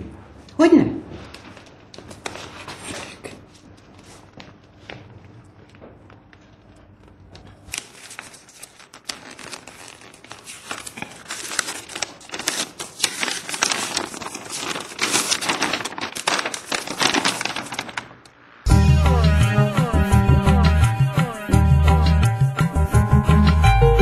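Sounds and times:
paper rustling and crinkling: 0:01.1 - 0:04.3, 0:07.3 - 0:18.2.

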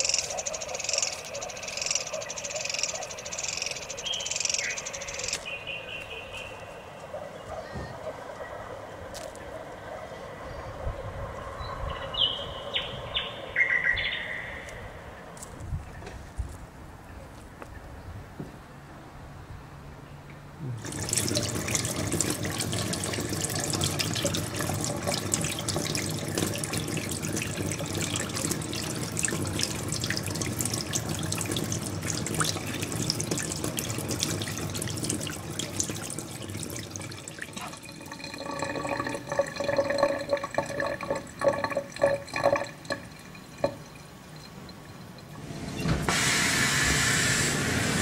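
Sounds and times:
running water splashing: 0:20.6 - 0:47.0.

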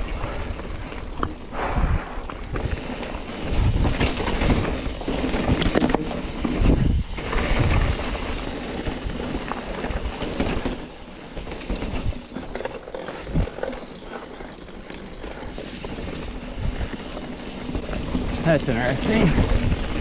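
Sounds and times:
wind buffeting microphone: 0:00.0 - 0:12.4, 0:15.4 - 0:20.0
bike rolling on dirt trail: 0:00.0 - 0:20.0.

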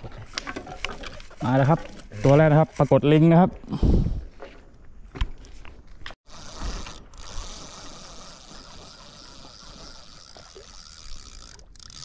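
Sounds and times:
fishing reel whirring: 0:06.2 - 0:12.0.

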